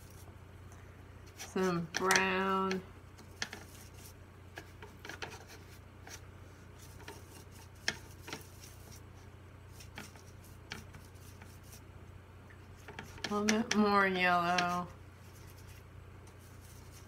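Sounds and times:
brush tapping palette: 1.7s - 6.2s, 6.8s - 9.0s, 9.7s - 11.8s, 12.8s - 17.0s
brush scrubbing in paint pans: 3.2s - 11.9s, 12.7s - 17.0s.

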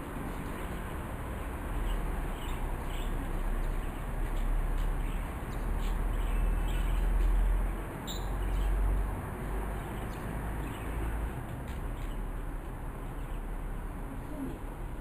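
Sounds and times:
faint bird chirps: 8.1s - 8.7s.

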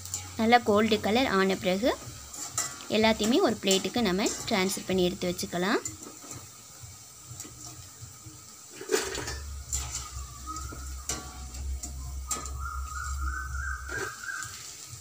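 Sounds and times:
wire strainer clinking on steel: 0.0s - 6.4s, 8.9s - 13.2s
oil sizzling faintly: 0.0s - 15.0s.

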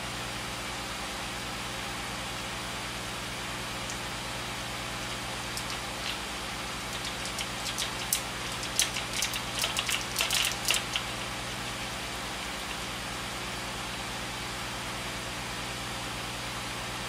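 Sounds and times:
steady low hum: 0.8s - 17.0s
fingers crinkling small item: 6.8s - 11.4s.

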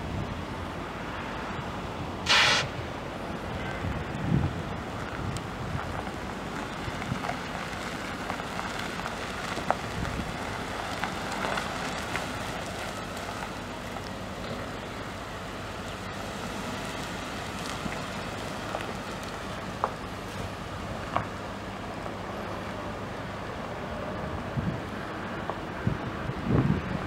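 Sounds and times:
truck engine idling: 0.0s - 25.7s
even hiss: 2.2s - 2.8s.

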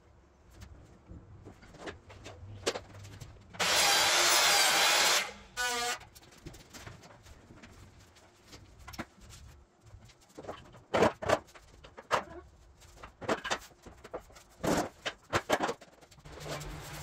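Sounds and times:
power tool cutting: 3.6s - 6.0s.

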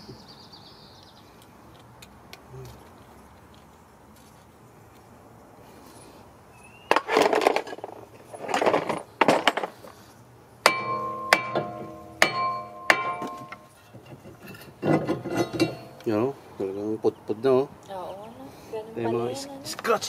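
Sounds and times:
hammer striking metal rotor: 10.7s - 13.7s.

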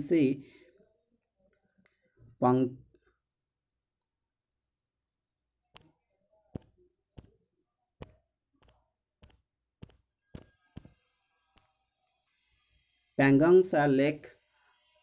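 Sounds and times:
fingertip tapping touchscreen: 5.7s - 7.4s, 8.0s - 11.8s.

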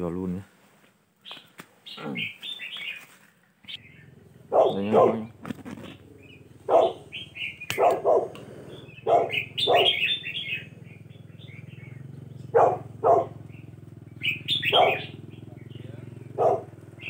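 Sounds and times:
small bird chirps: 1.2s - 17.0s
loud short animal calls: 1.8s - 3.0s, 3.7s - 15.2s
butane torch roaring: 5.3s - 9.1s.

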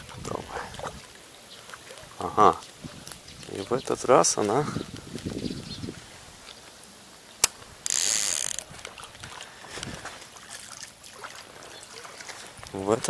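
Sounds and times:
sharp click: 7.4s - 8.6s
fishing reel whirring: 7.8s - 8.7s.

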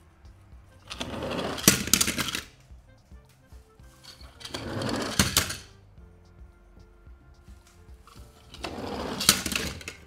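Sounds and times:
toy truck wheels rattling: 0.8s - 2.5s, 4.1s - 5.7s, 8.4s - 10.0s.

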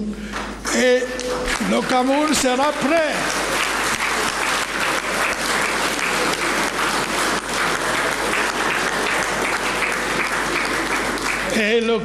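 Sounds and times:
audience applauding: 0.3s - 11.9s.

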